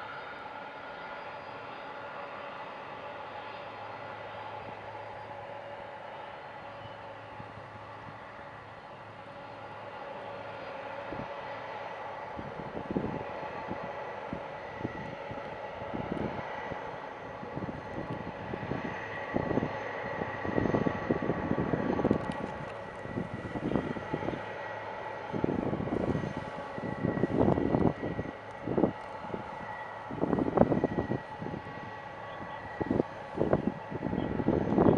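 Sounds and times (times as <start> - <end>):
jet engines whining: 0.0 - 34.9
low gusts of noise: 0.0 - 34.9.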